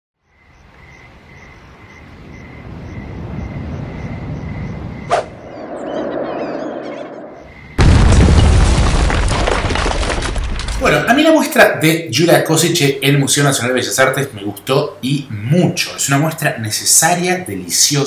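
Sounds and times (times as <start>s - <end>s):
chirping glides: 0.2s - 7.8s
low rumble: 3.3s - 8.8s.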